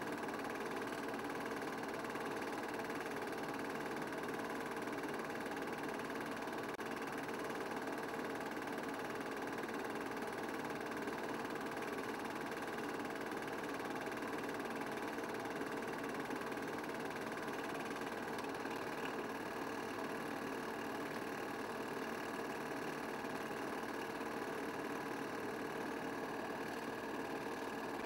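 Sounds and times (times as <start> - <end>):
film projector whirring: 0.0 - 28.0.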